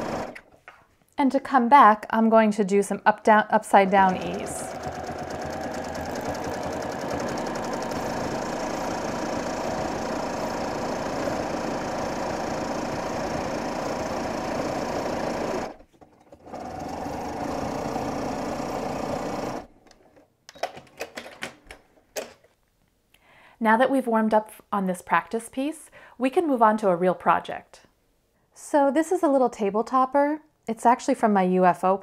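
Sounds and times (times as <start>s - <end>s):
sewing machine stitching: 0.0s - 0.5s, 3.6s - 19.8s.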